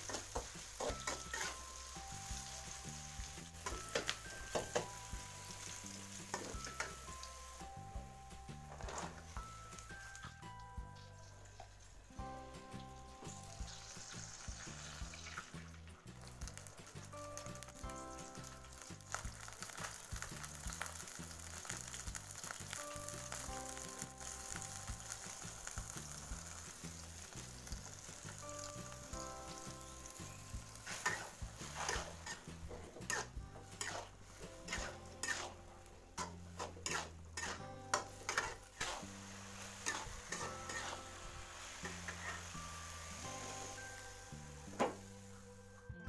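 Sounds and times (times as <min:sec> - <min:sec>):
metal spatula scraping a pan: 0:00.0 - 0:04.9, 0:30.7 - 0:44.2
food sizzling in a wok: 0:00.0 - 0:45.8
soft background music: 0:00.0 - 0:46.0.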